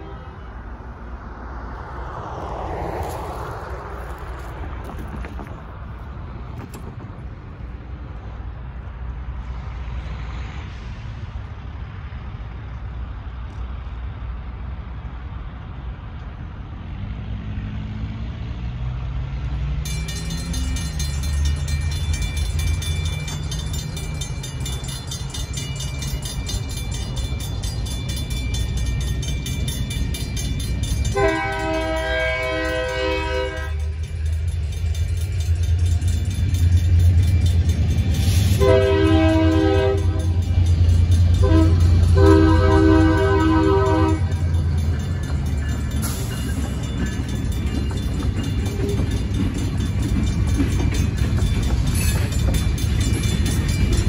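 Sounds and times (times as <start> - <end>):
locomotive horn: 0.0 - 0.8, 31.1 - 34.0, 38.6 - 40.5, 41.3 - 44.5
low traffic rumble: 0.0 - 54.0
railroad crossing bell ringing: 19.6 - 54.0.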